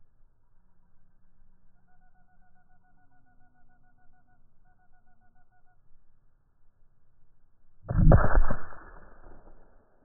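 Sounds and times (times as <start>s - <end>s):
rifle shot: 7.9s - 10.0s.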